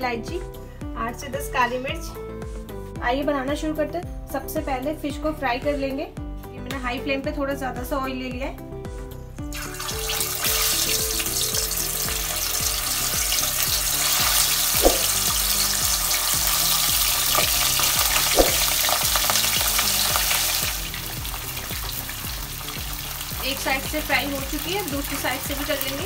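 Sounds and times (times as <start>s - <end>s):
fish sizzling in hot oil: 9.5s - 26.0s.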